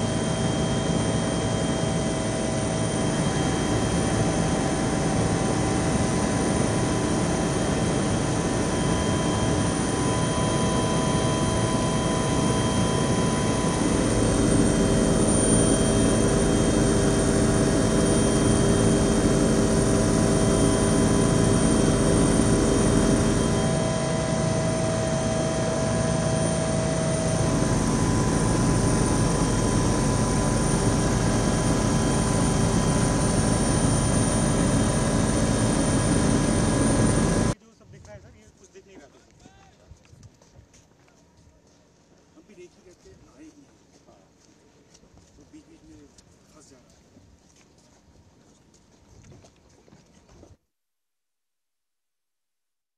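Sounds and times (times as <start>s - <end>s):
aircraft cabin engine drone: 0.0s - 37.6s.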